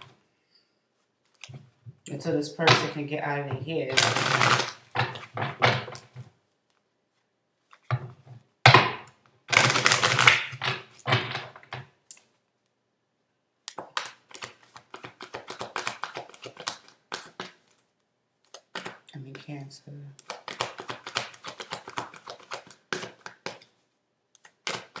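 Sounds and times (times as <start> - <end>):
cards being shuffled: 3.9 - 8.0, 9.5 - 11.8, 13.7 - 19.1, 20.2 - 25.0.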